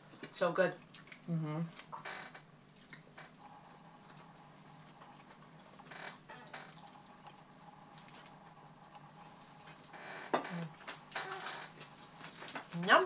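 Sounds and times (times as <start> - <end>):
wet chewing and lip-smacking: 0.8 - 2.0, 2.7 - 3.1.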